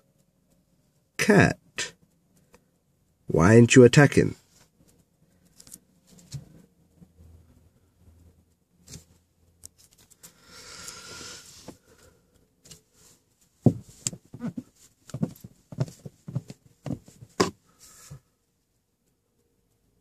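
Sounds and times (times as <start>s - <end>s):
short breathy hiss: 10.2s - 12.2s
knocks and taps near microphone: 13.6s - 17.6s.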